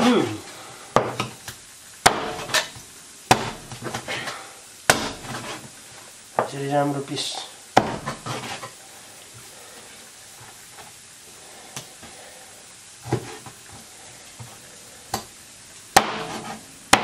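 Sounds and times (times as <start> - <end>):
cleaver chopping on plastic board: 1.0 - 1.3, 2.0 - 2.7, 3.3 - 4.0, 4.9 - 5.4, 7.8 - 8.2, 16.0 - 17.0.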